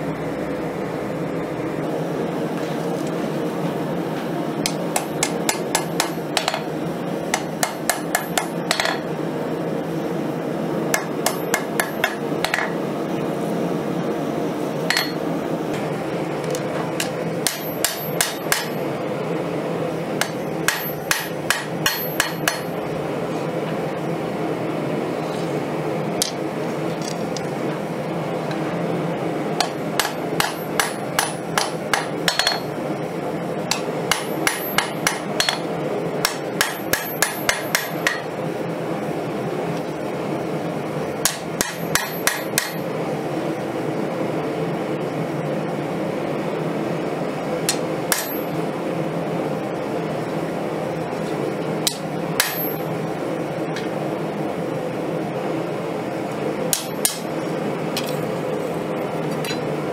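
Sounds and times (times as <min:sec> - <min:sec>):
steady background hum: 0:00.0 - 0:59.9
hammer striking steel on anvil: 0:04.7 - 0:06.7, 0:07.3 - 0:09.1, 0:11.0 - 0:12.8, 0:14.9 - 0:15.2, 0:17.0 - 0:18.8, 0:20.2 - 0:22.8, 0:29.6 - 0:32.7, 0:33.7 - 0:38.3, 0:41.2 - 0:42.8, 0:47.7 - 0:48.6, 0:51.9 - 0:52.9, 0:56.7 - 0:57.3.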